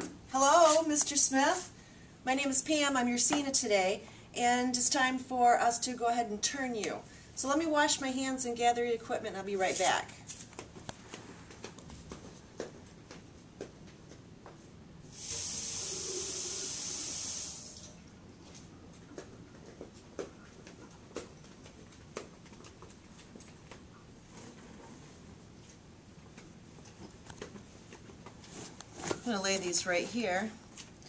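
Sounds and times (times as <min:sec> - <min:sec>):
water running from tap: 0:15.1 - 0:18.0.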